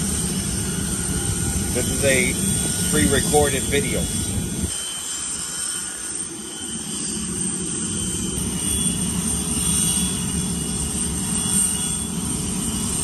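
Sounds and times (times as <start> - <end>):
jet turbine running: 0.0 - 13.0.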